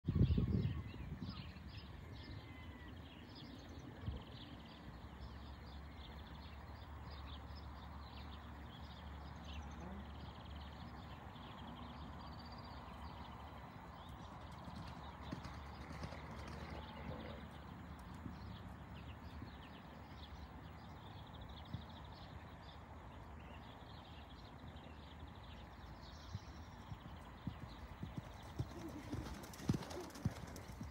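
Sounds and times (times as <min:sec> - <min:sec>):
muffled hoofbeats on grass: 0:26.0 - 0:30.9.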